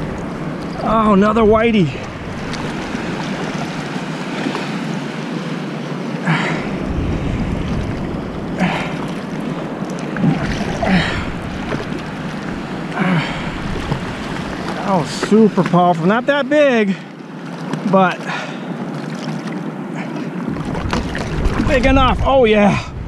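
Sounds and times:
water washing around a board: 0.0s - 23.0s
wind on microphone: 6.6s - 12.7s, 13.3s - 14.8s, 20.5s - 23.0s.

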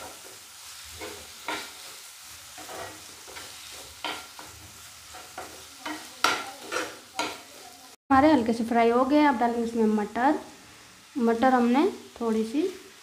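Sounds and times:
spatula scraping a frying pan: 0.0s - 7.6s
oil sizzling: 0.0s - 13.0s.

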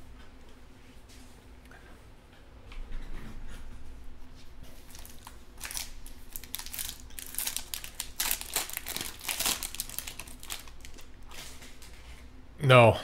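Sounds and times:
foil wrapper crinkling and tearing: 4.8s - 12.0s.

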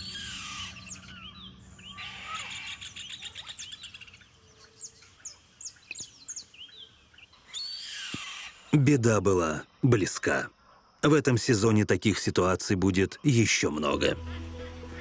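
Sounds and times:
bird alarm calls: 0.0s - 8.8s.

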